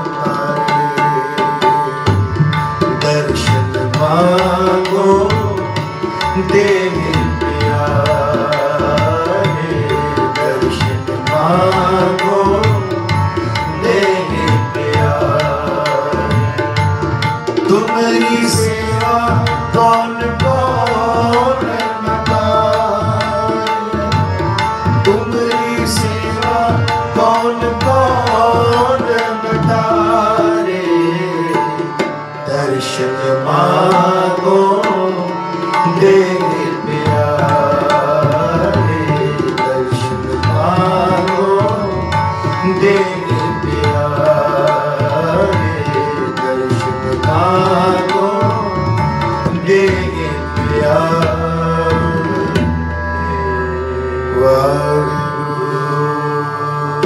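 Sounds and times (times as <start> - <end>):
harmonium sustained notes: 0.0 - 57.0
tabla rhythm: 0.0 - 57.0.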